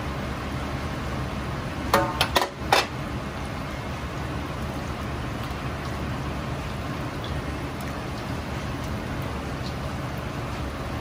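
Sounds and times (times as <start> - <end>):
chicken deep-frying in oil: 0.0 - 11.0
low steady rumble: 0.0 - 11.0.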